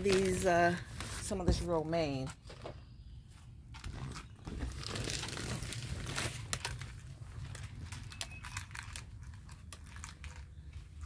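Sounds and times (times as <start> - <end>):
plastic cover rustling: 3.8 - 10.4.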